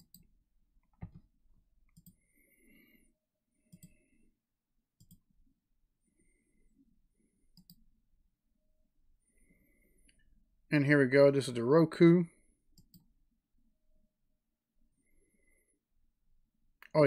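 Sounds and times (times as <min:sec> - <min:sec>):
computer mouse clicking: 0:00.0 - 0:01.2, 0:01.9 - 0:02.2, 0:03.7 - 0:04.0, 0:05.0 - 0:05.3, 0:07.5 - 0:07.8, 0:12.8 - 0:13.1.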